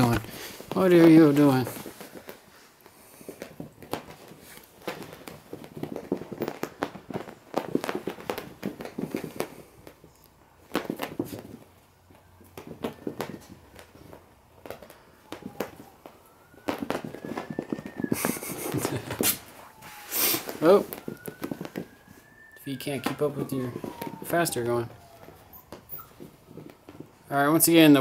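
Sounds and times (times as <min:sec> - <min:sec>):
puppies playing and scuffling: 0:00.0 - 0:15.9, 0:16.5 - 0:28.0.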